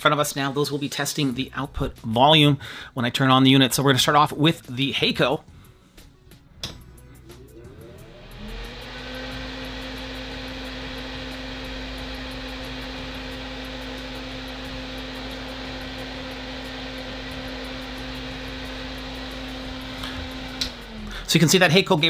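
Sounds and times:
fume extractor fan humming: 6.5 - 22.0.

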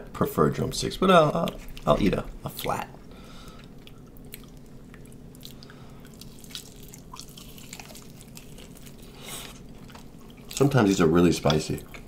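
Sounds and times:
chewing chicken wings: 3.6 - 12.0.

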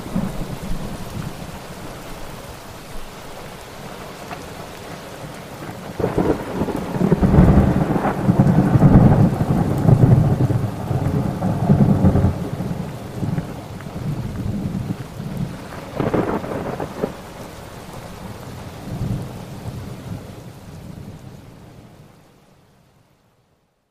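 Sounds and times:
steady rain: 0.0 - 23.8
thunder rumbling: 5.7 - 17.7.

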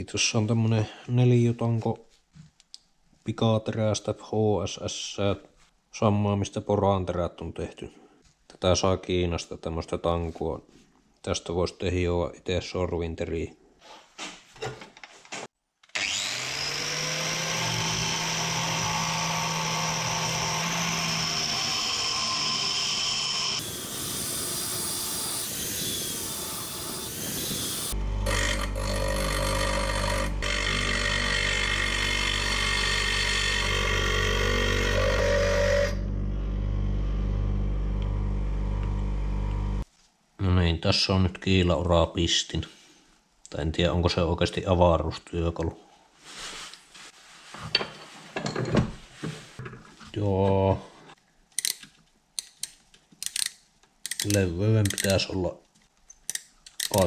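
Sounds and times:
bench grinder humming: 15.9 - 39.8
angle grinder grinding steel: 16.0 - 39.8, 56.3 - 57.0.

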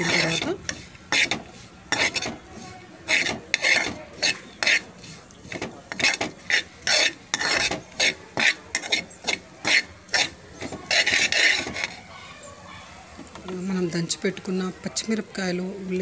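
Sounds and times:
metal spoon scraping frying pan: 0.0 - 12.1.

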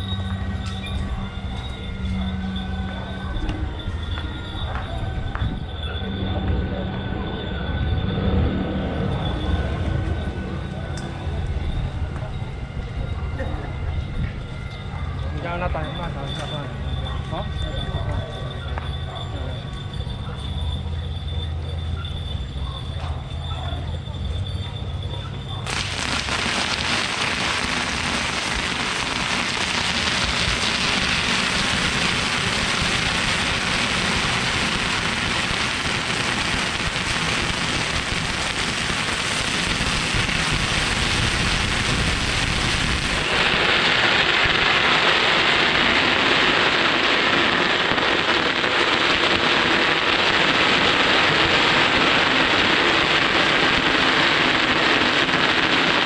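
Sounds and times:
firecrackers crackling: 25.6 - 56.0.

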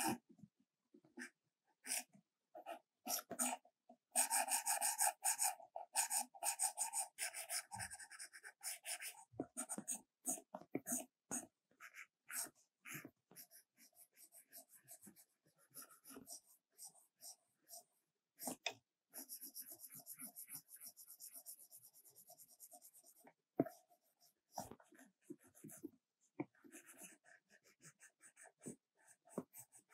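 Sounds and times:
stylus scratching on glass screen: 4.2 - 18.6, 19.2 - 25.8.

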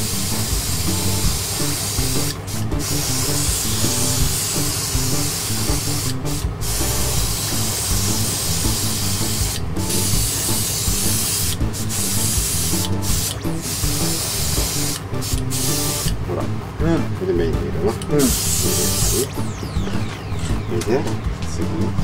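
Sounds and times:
airbrush spraying hiss: 0.0 - 16.1, 18.2 - 19.3.

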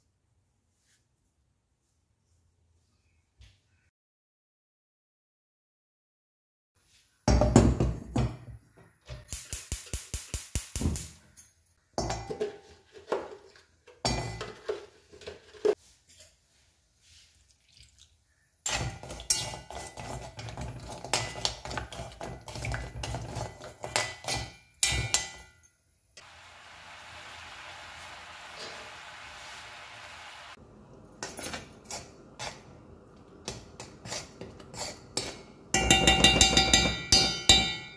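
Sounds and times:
spoon clinking against pan: 18.7 - 22.0, 34.8 - 37.9
liquid bubbling and hissing: 26.2 - 30.6.

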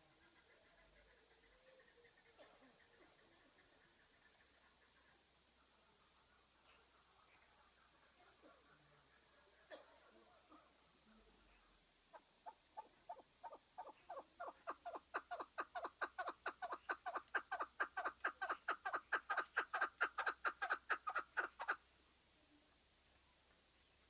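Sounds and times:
partridge clucking call: 12.1 - 21.8.

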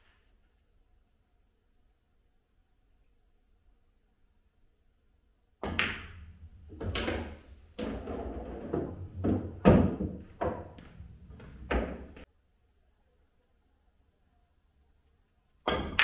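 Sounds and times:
pool balls knocking: 5.6 - 12.3.

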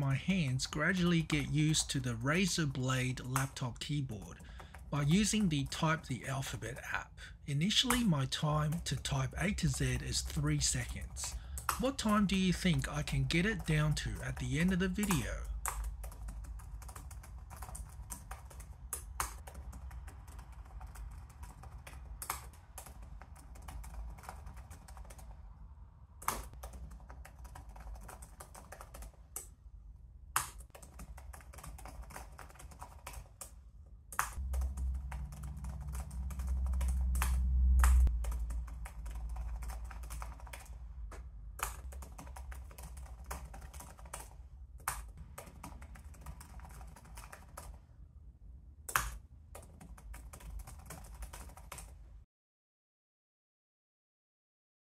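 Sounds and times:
fast typing on laptop keyboard: 0.0 - 7.0, 7.6 - 25.4, 26.2 - 29.5, 30.4 - 33.6, 34.2 - 40.8, 41.6 - 47.8, 48.9 - 51.9
low rumble: 34.4 - 41.6.

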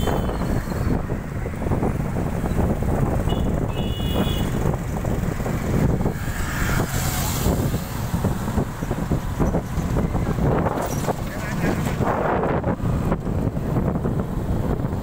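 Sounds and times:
passing traffic: 0.0 - 15.0
vehicle road and wind noise: 0.0 - 15.0.

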